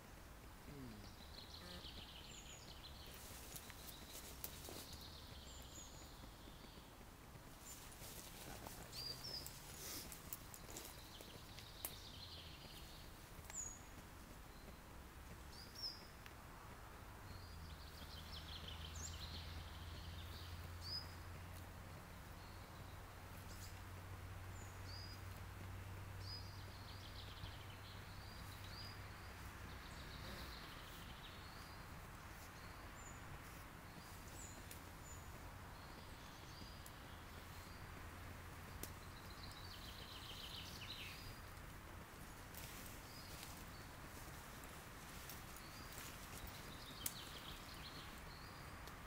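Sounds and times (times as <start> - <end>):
birds chirping: 0.0 - 49.0.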